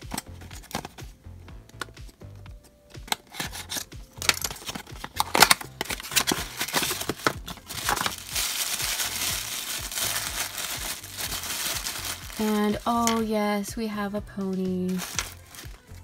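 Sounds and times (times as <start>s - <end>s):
cardboard rustling and snapping: 3.0s - 12.4s, 14.9s - 15.8s
tissue paper crinkling: 3.4s - 13.2s, 14.8s - 16.0s.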